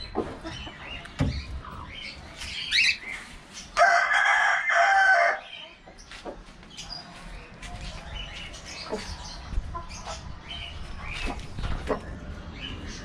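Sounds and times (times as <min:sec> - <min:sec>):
rooster crowing: 0:03.8 - 0:05.4.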